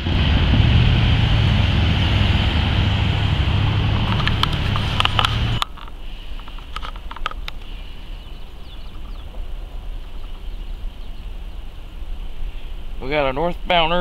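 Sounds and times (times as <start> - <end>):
low rumble: 0.0 - 6.4, 7.4 - 13.0
faint bird chirps: 5.5 - 6.7, 7.4 - 13.0.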